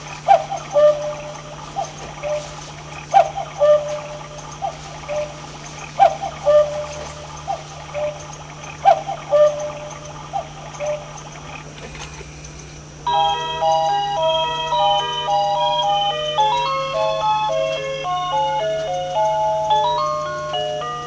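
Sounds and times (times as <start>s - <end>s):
electronic cuckoo call: 0.0s - 12.4s, 13.0s - 21.0s
electronic chime melody: 13.0s - 21.0s.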